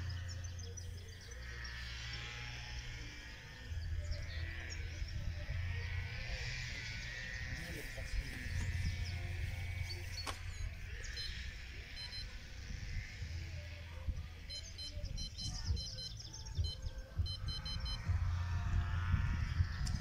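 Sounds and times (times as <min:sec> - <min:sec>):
low steady rumble: 0:00.0 - 0:20.0
short high beeps: 0:12.0 - 0:12.3, 0:14.5 - 0:18.1.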